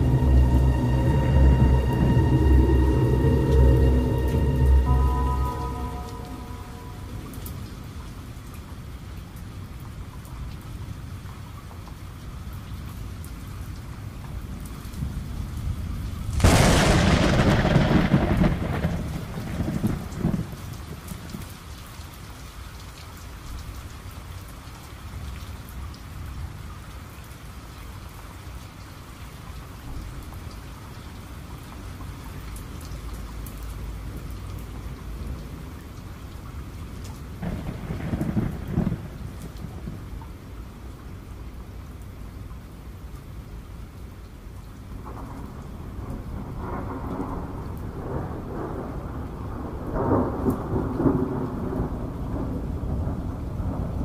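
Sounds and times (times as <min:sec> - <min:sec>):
thunder rumbling: 0:00.0 - 0:08.4, 0:15.0 - 0:21.4, 0:37.3 - 0:40.4, 0:45.0 - 0:54.0
steady rain: 0:00.0 - 0:54.0.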